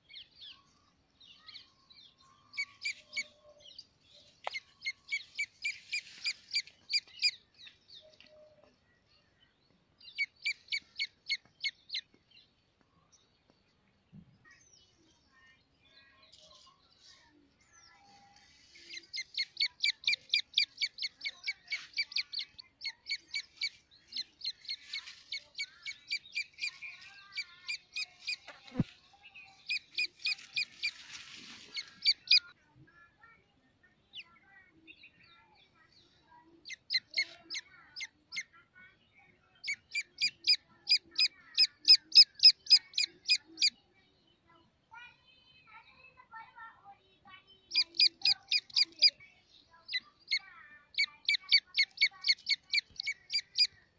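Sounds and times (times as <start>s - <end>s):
chick peeping: 2.4s - 7.5s, 10.0s - 12.1s, 18.2s - 28.9s, 29.6s - 32.5s, 36.6s - 38.5s, 39.6s - 43.8s, 47.6s - 49.2s, 49.8s - 53.8s.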